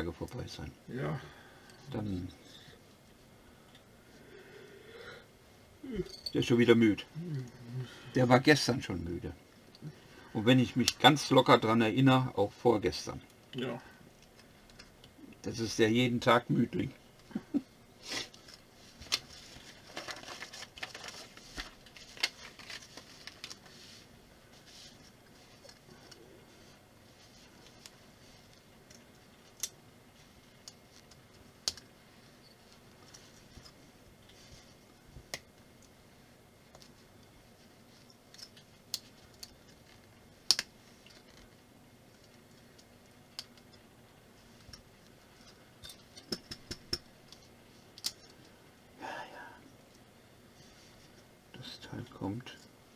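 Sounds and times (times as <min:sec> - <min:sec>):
paper rustling: 0:18.3 - 0:25.8.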